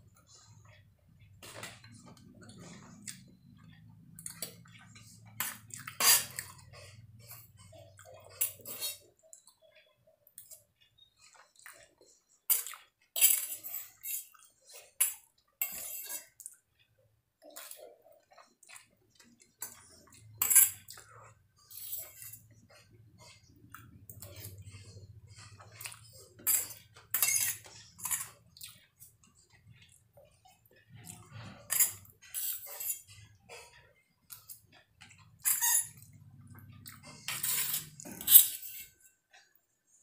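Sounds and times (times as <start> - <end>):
close-up chewing: 0.1 - 40.0
spoon scraping metal plate: 5.0 - 6.5, 15.6 - 16.3, 20.3 - 20.8, 26.4 - 28.4, 31.3 - 33.7, 37.1 - 39.0.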